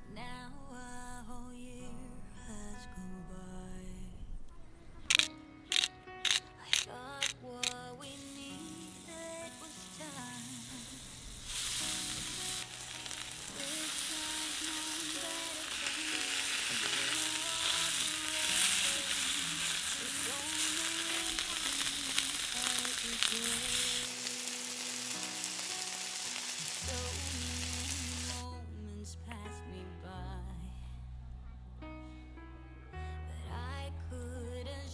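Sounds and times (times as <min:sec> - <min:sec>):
steak sizzling in a pan: 0:08.1 - 0:28.4.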